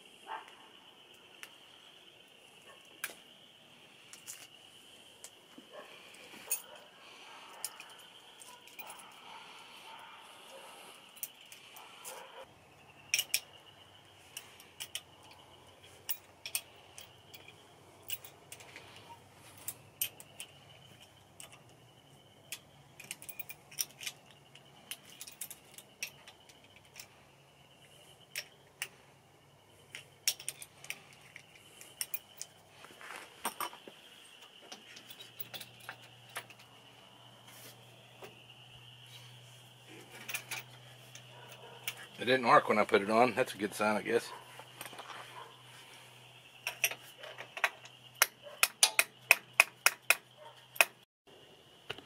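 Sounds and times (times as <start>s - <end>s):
hand tools clicking and clinking: 4.1s - 4.5s, 5.2s - 12.5s, 13.1s - 27.2s, 27.8s - 29.0s, 29.8s - 36.8s, 39.3s - 45.8s, 46.6s - 51.0s.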